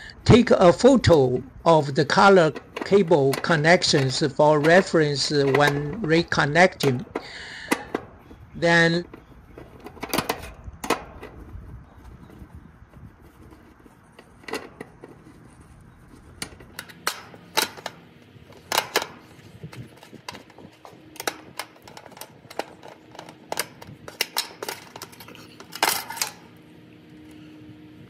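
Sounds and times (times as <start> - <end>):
screwdriver metallic clicks: 2.1 - 8.0, 16.4 - 26.4.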